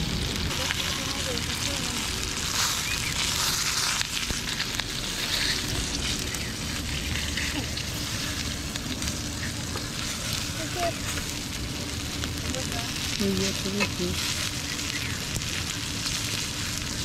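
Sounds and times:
oil sizzling in a frying pan: 0:00.0 - 0:17.0
metal spatula scraping a pan: 0:02.5 - 0:08.5.

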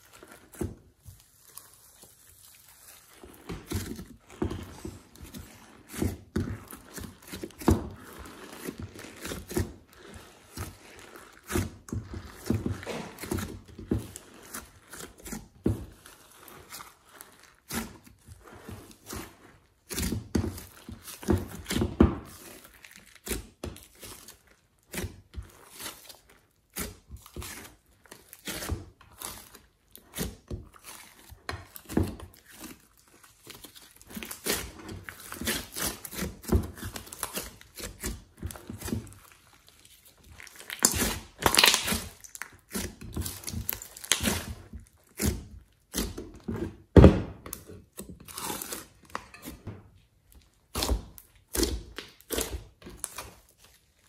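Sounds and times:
slime squishing and popping: 0:18.7 - 0:49.4.

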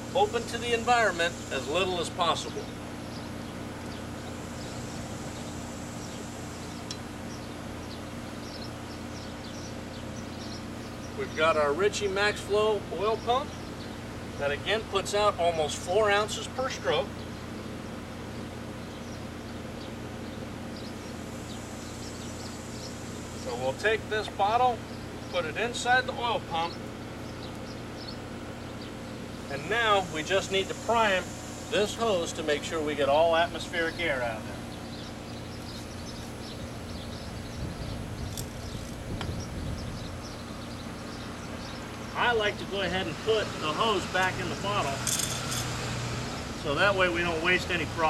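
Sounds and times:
air conditioner compressor drone: 0:00.0 - 0:48.0
condenser fan whirring: 0:00.0 - 0:48.0.

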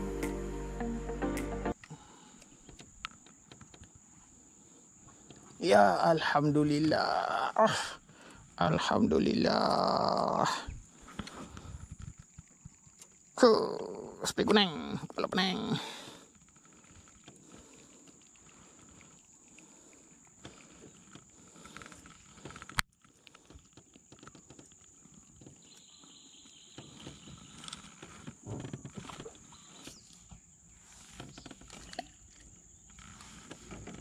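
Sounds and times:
faint rustles and knocks: 0:20.3 - 0:34.0.

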